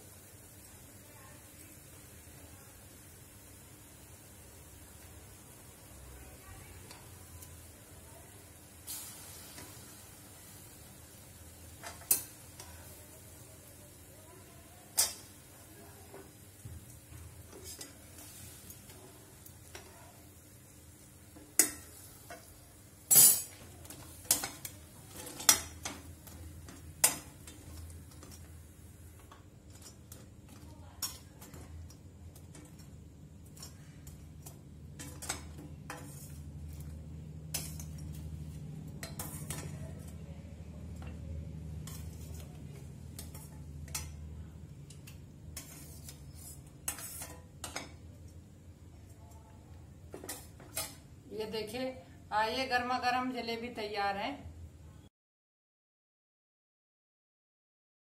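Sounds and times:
faint sizzle of frying: 0.0 - 55.1
metal utensils clinking on pots: 11.7 - 12.8, 14.9 - 15.4, 17.4 - 19.0, 21.4 - 28.6, 29.2 - 38.3, 38.9 - 40.1, 41.8 - 48.0, 50.1 - 51.1.

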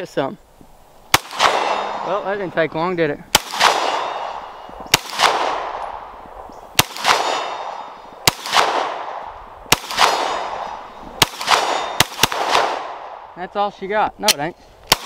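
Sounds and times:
pistol shots: 1.1 - 2.3, 3.3 - 6.2, 6.8 - 13.3.

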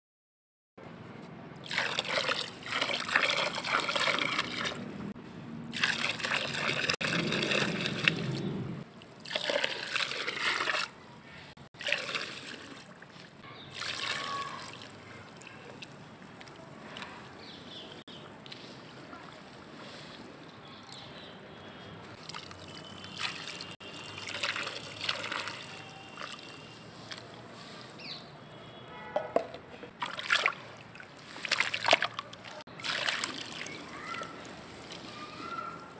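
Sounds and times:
sand pouring into water: 5.7 - 8.2, 9.2 - 11.0, 32.8 - 35.4.

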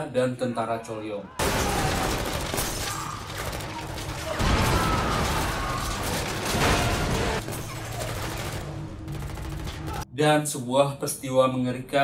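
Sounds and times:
crashing impacts: 1.4 - 8.7
gunfire: 1.4 - 10.0
tense music score: 1.5 - 10.2.

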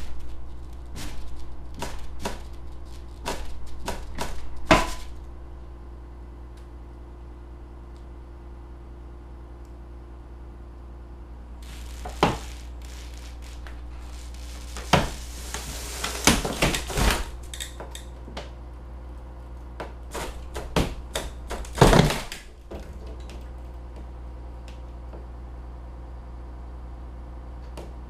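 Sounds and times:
steady low hum: 0.0 - 28.0
wooden frame cracking and creaking: 11.6 - 18.1, 20.1 - 23.5.

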